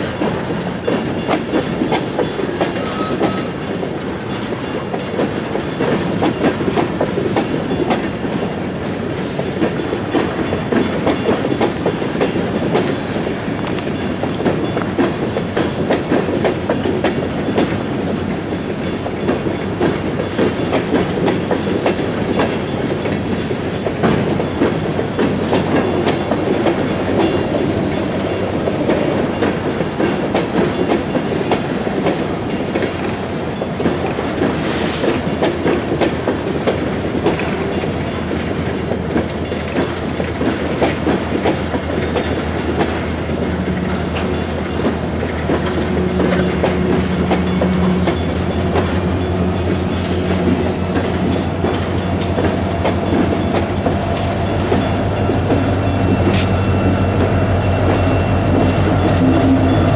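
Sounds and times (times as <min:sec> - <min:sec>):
clickety-clack over rail joints: 0:00.0 - 0:59.9
train wheels rumbling on rail: 0:00.0 - 0:59.9.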